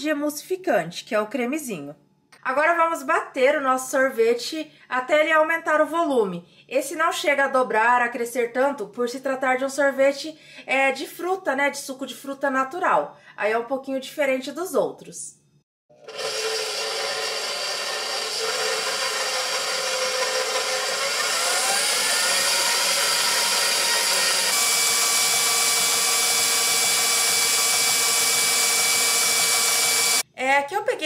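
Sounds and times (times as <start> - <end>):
electric stand mixer running: 15.9 - 30.2.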